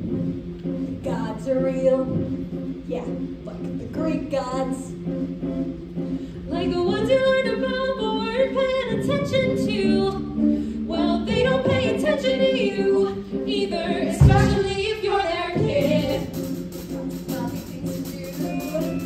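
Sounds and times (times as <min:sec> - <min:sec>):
low accompaniment notes: 0:00.0 - 0:19.0
group singing: 0:11.0 - 0:19.0.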